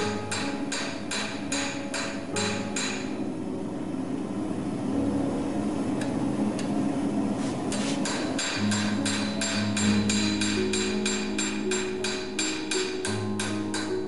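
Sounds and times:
hammer ringing on anvil: 0.0 - 3.2, 8.0 - 14.0.

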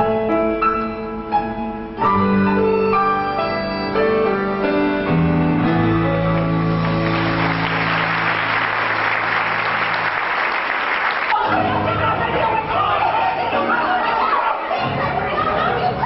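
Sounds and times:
orchestra with piano: 0.0 - 16.0
audience applause: 6.3 - 12.2.

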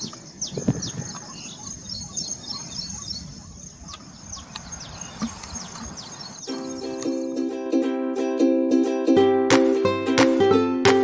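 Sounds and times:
small birds chirping: 0.0 - 7.6.

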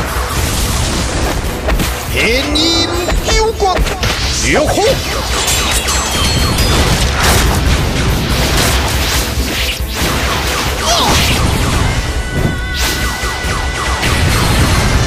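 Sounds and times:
loud battle music: 0.0 - 15.0
booming crashing impacts: 6.2 - 9.0.

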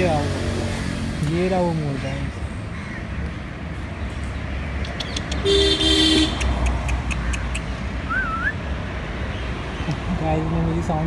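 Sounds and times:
road traffic rumble: 0.0 - 11.0
vehicle horn honk: 5.4 - 6.4
bird whistle: 8.1 - 8.6.

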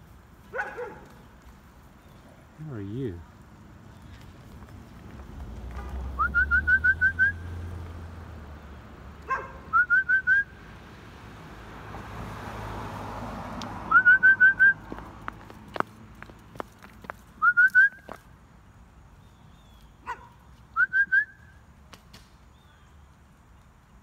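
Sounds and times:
person whistling short rising notes: 6.2 - 7.4, 9.7 - 10.5, 13.9 - 14.9, 17.4 - 18.1, 20.8 - 21.4.

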